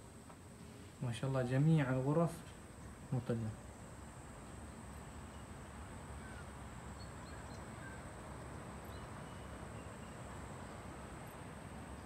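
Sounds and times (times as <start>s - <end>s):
faint bird chirps: 4.8s - 12.0s.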